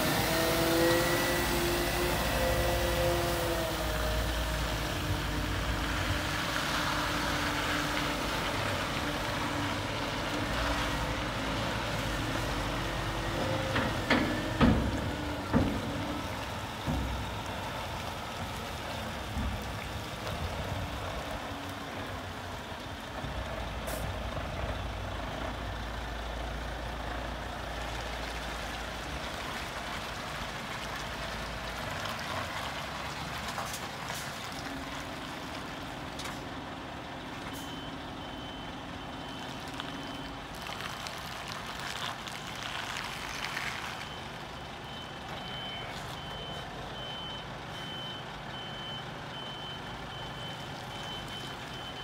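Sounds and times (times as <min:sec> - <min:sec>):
diesel truck engine running: 0:00.0 - 0:32.0, 0:32.6 - 0:40.6.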